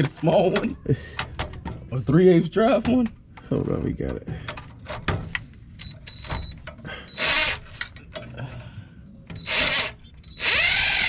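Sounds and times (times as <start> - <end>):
impact wrench bursts: 9.4 - 11.0.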